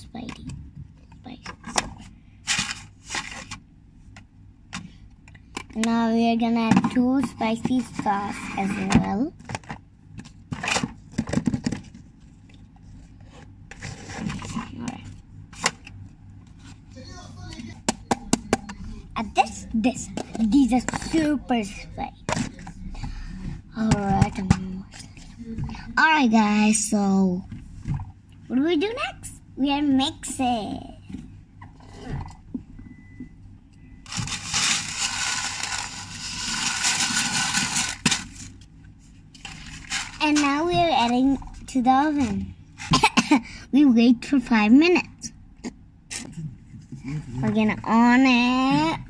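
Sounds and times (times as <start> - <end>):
steady low hum: 0.0 - 49.0
small toys rustling and scraping: 1.2 - 3.6, 6.7 - 9.8, 10.5 - 15.9, 34.1 - 43.0
loud rustling scrape: 34.1 - 38.6.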